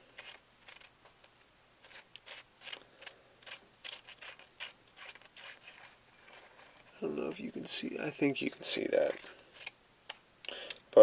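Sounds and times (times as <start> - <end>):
metal threads clicking and scraping: 0.2 - 6.9, 8.9 - 9.8.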